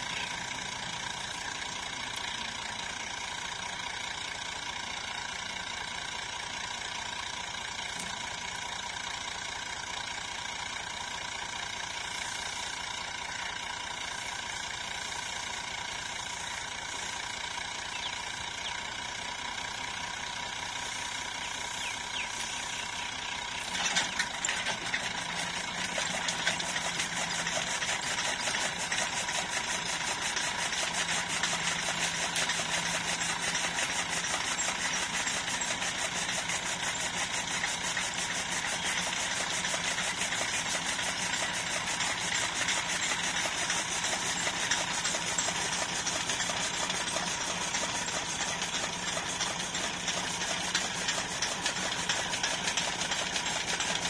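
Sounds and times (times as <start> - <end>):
tractor diesel engine running: 0.0 - 54.0
fast rattle: 12.2 - 54.0
chaff cutter mechanism turning: 23.6 - 54.0.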